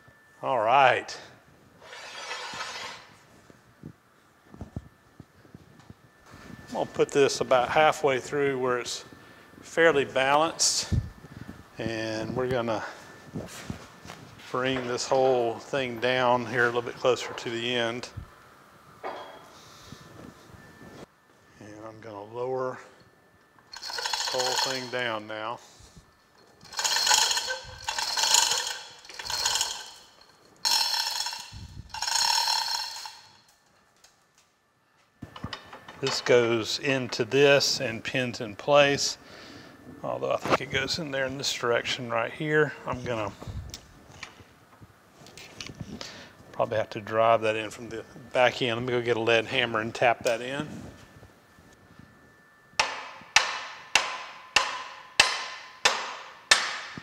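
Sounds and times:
hoist chain rattling: 23.7s - 25.1s, 26.4s - 33.5s.

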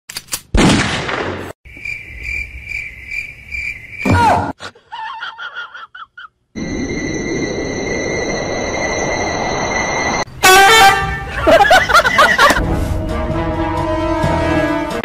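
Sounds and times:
cricket chirping: 1.7s - 4.2s, 6.6s - 10.3s
falling squeal: 6.6s - 10.3s.

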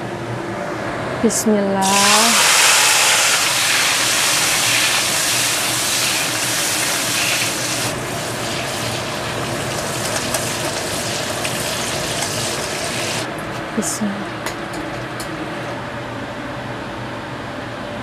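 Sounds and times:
food frying in hot oil: 1.8s - 13.3s.

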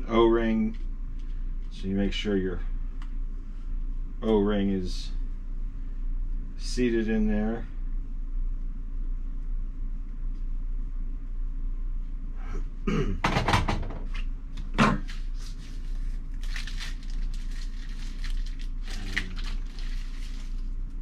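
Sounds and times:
steady low hum: 0.0s - 21.0s
hard plastic knocks and clatter: 13.2s - 14.0s.

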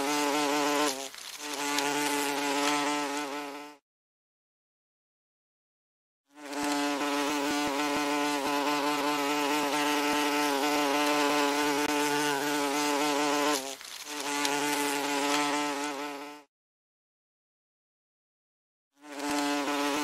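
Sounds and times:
wasp wing buzz: 0.0s - 3.8s, 6.3s - 16.5s, 19.0s - 20.0s.

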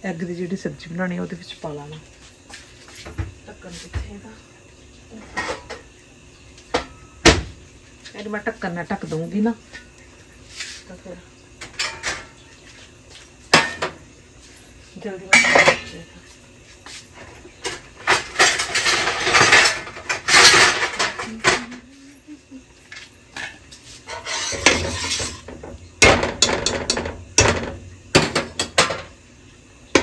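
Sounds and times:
metal utensils and pot clattering: 5.1s - 5.9s, 11.6s - 12.8s, 13.5s - 16.4s, 17.1s - 21.9s, 22.9s - 29.1s
metal scraping: 23.4s - 25.4s.

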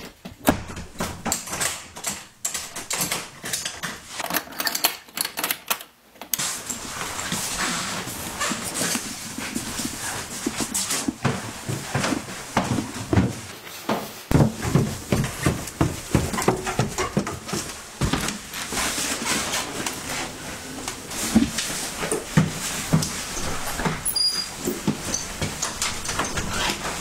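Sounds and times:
footsteps on wooden floors: 6.6s - 27.0s
door squeak: 23.3s - 26.8s.

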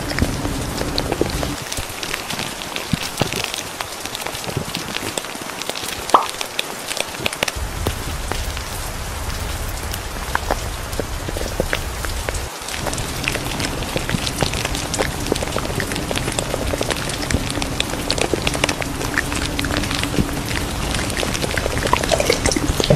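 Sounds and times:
low rumble: 0.0s - 2.0s, 7.6s - 22.9s
rain falling: 0.0s - 22.9s.

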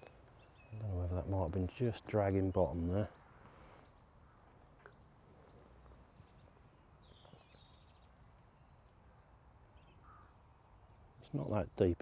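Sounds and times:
faint high bird chirps: 4.8s - 10.4s.

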